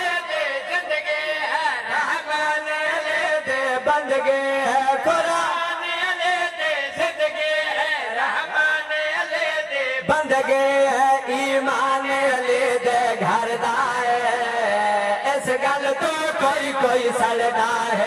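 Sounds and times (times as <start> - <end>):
man chanting into a microphone: 0.0 - 18.0.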